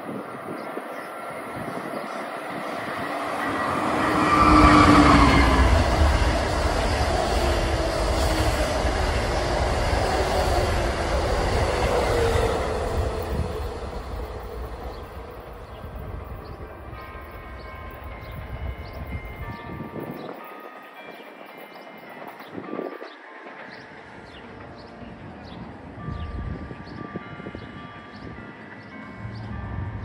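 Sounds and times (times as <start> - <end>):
locomotive whine: 0.0 - 20.1
train wheels rumbling on rails: 0.0 - 26.9.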